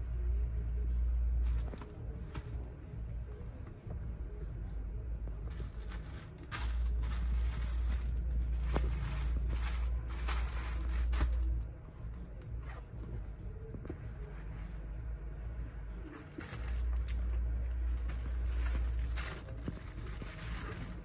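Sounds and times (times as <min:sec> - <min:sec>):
low rumble: 0:00.0 - 0:21.0
plastic packaging crinkling: 0:05.5 - 0:11.6, 0:16.2 - 0:21.0.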